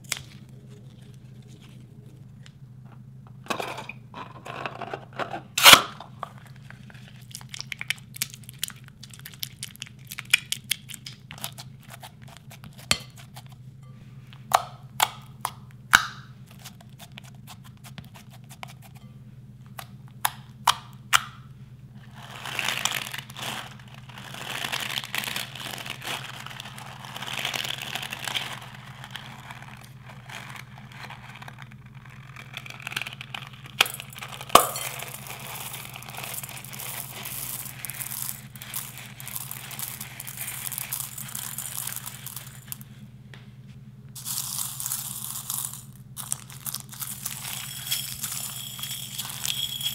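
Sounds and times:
low steady hum: 0.0 - 49.9
spatula scraping glass bowl: 47.0 - 49.9.

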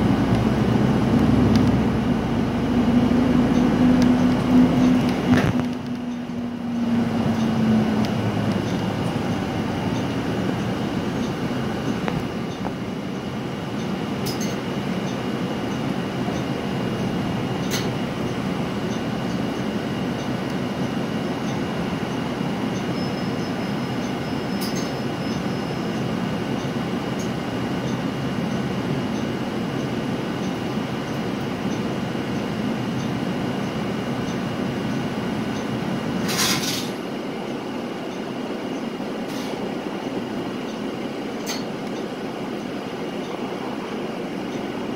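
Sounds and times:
humming engine note: 0.0 - 13.9
bus interior road rumble: 0.0 - 44.9.

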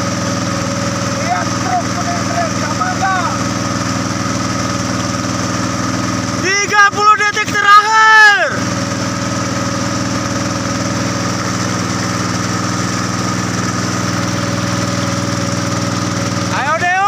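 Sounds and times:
boat engine droning: 0.0 - 17.0
person shouting: 1.1 - 3.5, 6.4 - 8.6.

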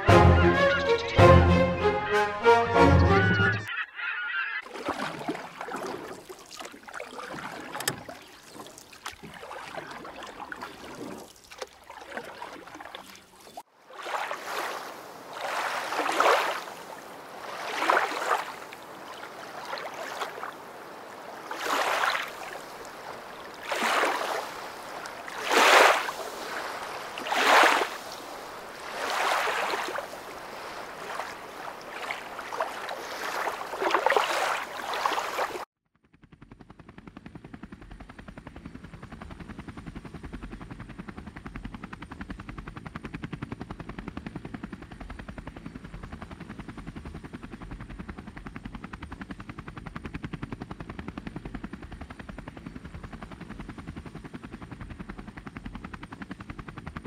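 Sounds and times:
water splashing along boat hull: 4.6 - 35.7.

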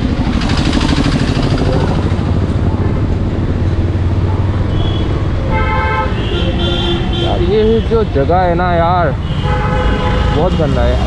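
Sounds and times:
motorcycle engine running: 0.0 - 6.3
vehicle horn honking: 4.7 - 8.1, 9.2 - 11.0.

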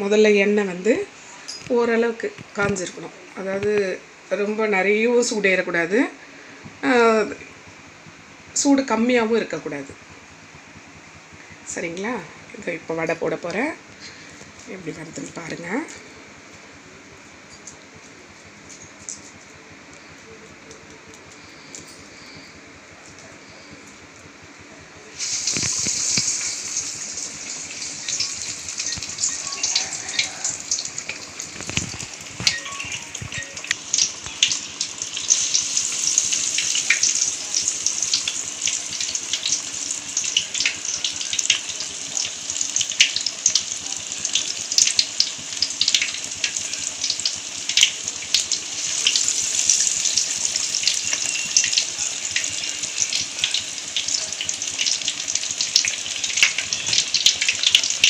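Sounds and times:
batter deep-frying in hot oil: 6.8 - 58.0.

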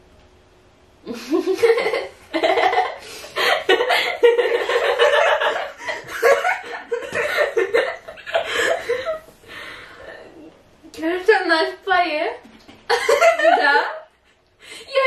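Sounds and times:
girls laughing: 1.1 - 9.3, 12.9 - 14.4.

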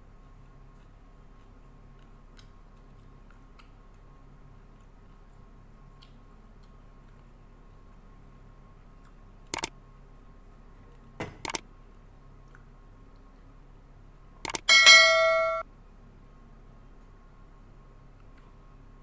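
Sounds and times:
sharp mouse clicks: 9.0 - 9.8, 11.4 - 11.6, 14.4 - 14.7
bright bell ding: 14.7 - 15.6.

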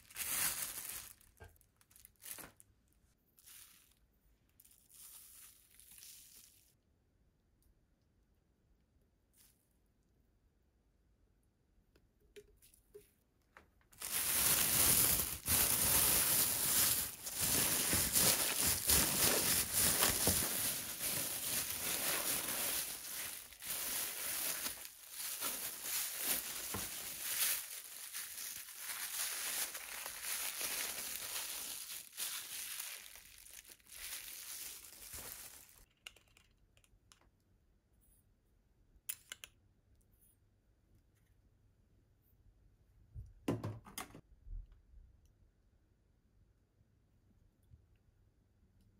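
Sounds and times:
plastic bag crinkling: 0.0 - 2.6, 13.9 - 35.9.

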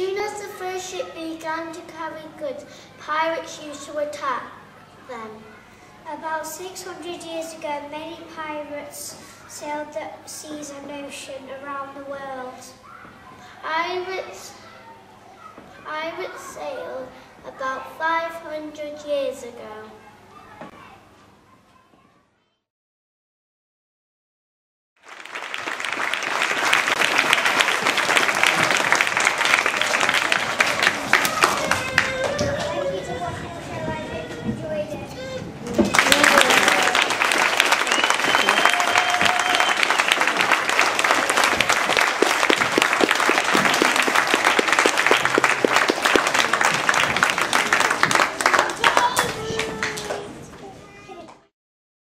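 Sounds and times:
audience applauding: 25.0 - 33.1, 35.7 - 50.3.

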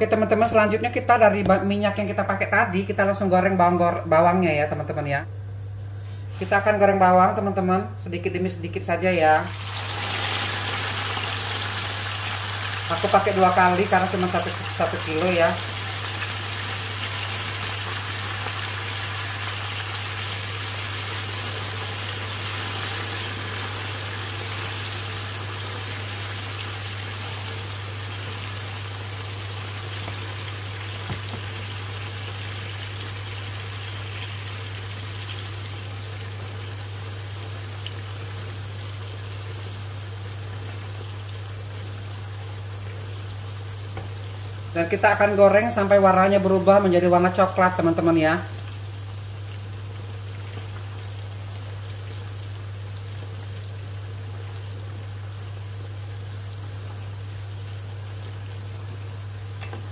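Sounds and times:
peanuts sizzling in hot oil: 9.5 - 59.9.

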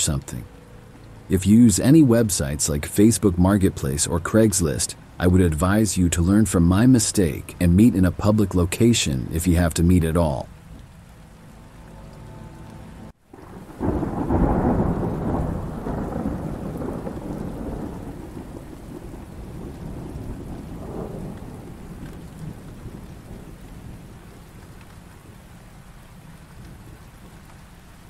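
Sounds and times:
steady rain: 0.0 - 28.0
thunder rumbling: 13.3 - 28.0.

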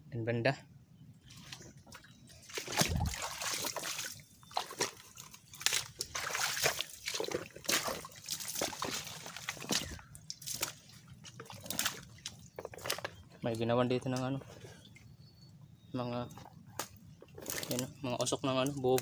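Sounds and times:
footsteps splashing in water: 1.4 - 13.2.

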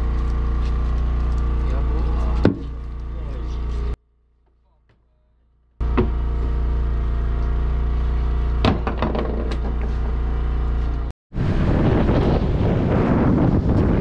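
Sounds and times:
boat engine humming: 0.0 - 4.0, 5.8 - 11.6
wind buffeting microphone: 11.3 - 14.0.

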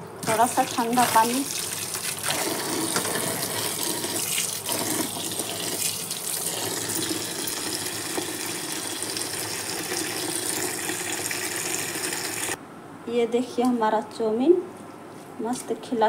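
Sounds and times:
tap water running into colander: 0.2 - 12.6.

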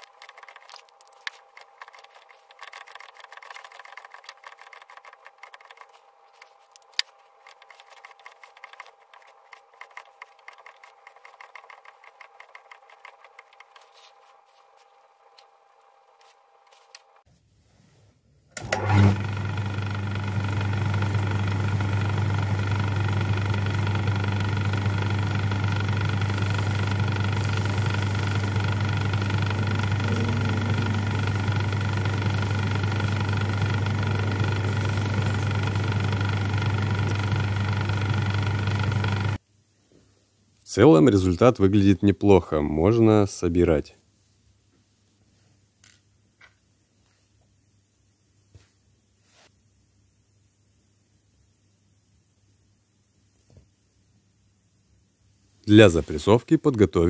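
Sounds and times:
cutter scraping and ticking: 0.0 - 13.9, 22.8 - 39.4
metal lathe humming: 18.6 - 39.4.

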